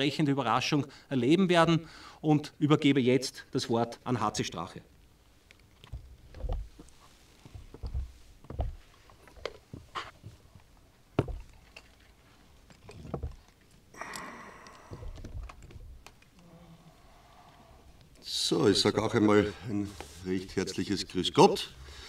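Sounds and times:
microphone stands thumping and knocking: 11.2 - 11.5.

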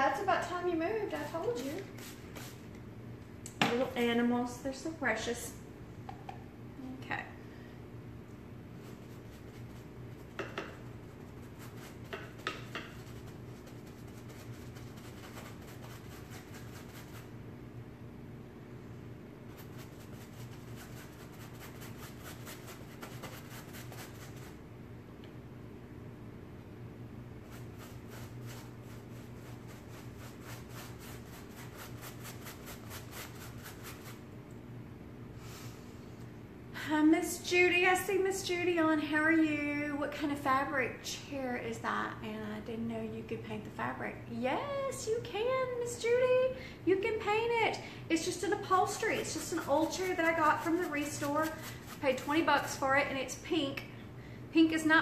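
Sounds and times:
steady low hum: 0.0 - 55.0
paintbrush scrubbing fabric: 0.9 - 2.6, 8.8 - 17.3, 19.5 - 24.6, 27.4 - 34.3, 48.2 - 53.1.

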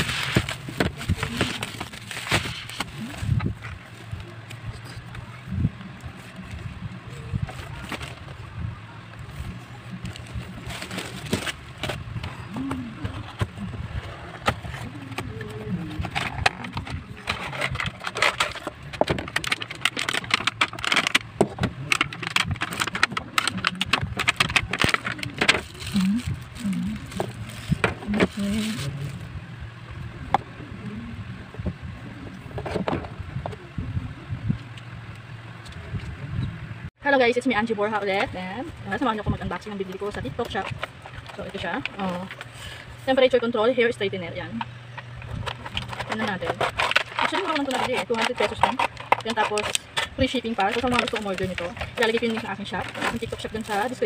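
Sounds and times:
plastic bag crinkling: 0.0 - 4.1, 22.1 - 29.1, 45.4 - 54.0
cardboard box rustling: 0.0 - 4.4, 7.4 - 8.4, 9.2 - 29.0, 45.3 - 54.0
steady low hum: 0.0 - 54.0.

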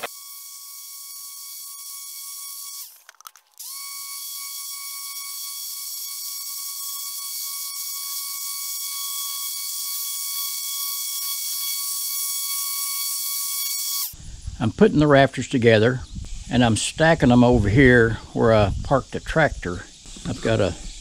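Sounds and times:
orbital sander whining: 0.0 - 3.0.

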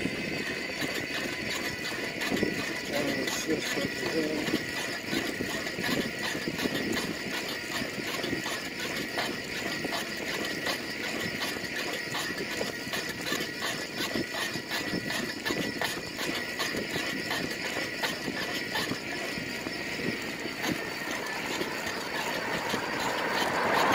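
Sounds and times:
faint steady whine: 0.0 - 23.9
small vehicle running: 0.0 - 23.9
fast regular ticking: 0.1 - 23.9.

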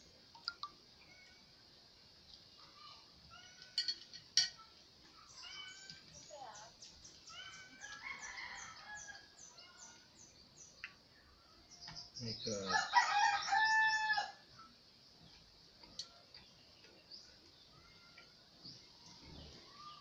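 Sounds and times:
small birds chirping: 0.0 - 20.0
rooster crowing: 7.5 - 9.4, 12.7 - 14.4.

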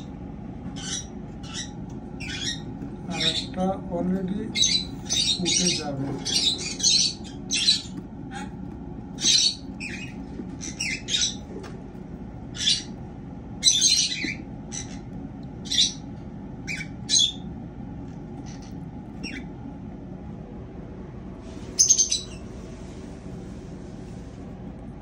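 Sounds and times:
cockatiels squawking: 0.7 - 3.6, 4.2 - 11.7, 12.5 - 13.0, 13.6 - 17.5, 18.4 - 19.5, 21.8 - 22.4.

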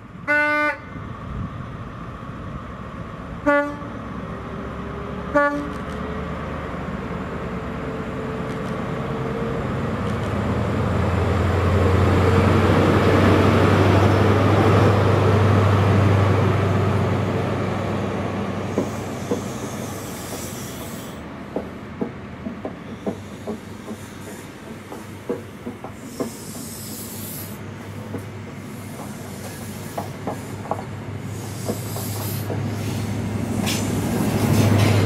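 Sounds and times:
diesel train engine accelerating: 0.9 - 35.0
train wheels clicking over rail joints: 18.6 - 35.0
brief hiss: 26.0 - 27.6, 31.3 - 35.0.

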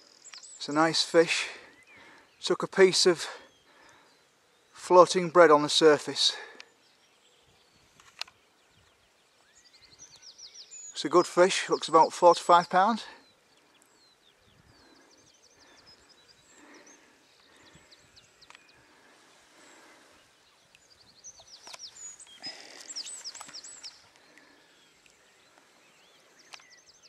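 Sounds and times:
songbird chirping: 0.0 - 27.0
faint sharp clicks: 0.2 - 0.5, 6.5 - 6.8, 8.0 - 8.4, 18.4 - 18.8, 21.5 - 25.7, 26.4 - 26.8.

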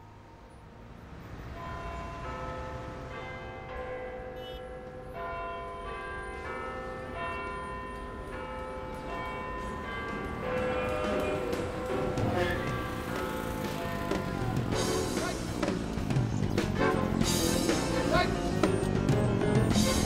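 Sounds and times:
church bells ringing: 1.4 - 15.9.

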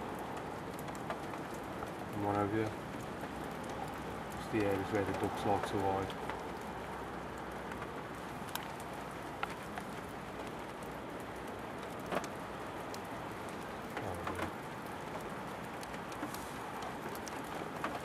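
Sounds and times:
raindrops ticking close by: 0.0 - 18.0
steady rain falling: 0.0 - 18.0.

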